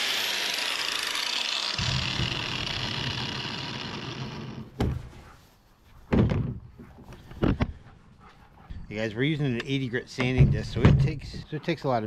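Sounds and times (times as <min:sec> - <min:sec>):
angle grinder whirring down: 0:00.0 - 0:04.8.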